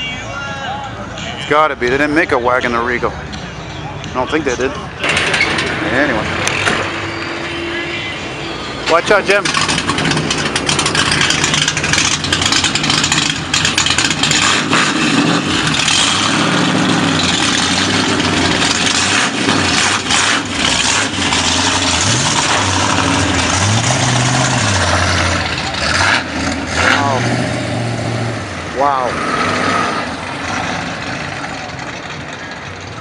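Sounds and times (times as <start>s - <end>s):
car engine running: 8.4s - 33.0s.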